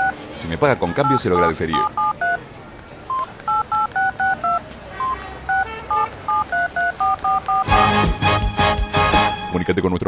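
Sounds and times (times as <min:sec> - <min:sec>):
phone keypad two-tone beeps: 0:01.0 - 0:02.4, 0:03.1 - 0:07.7.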